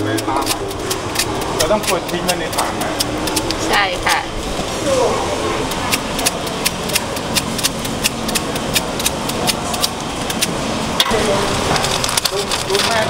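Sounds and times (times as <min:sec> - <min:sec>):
knife slicing crisp mango: 0:00.0 - 0:03.5
steady background hum: 0:00.0 - 0:13.0.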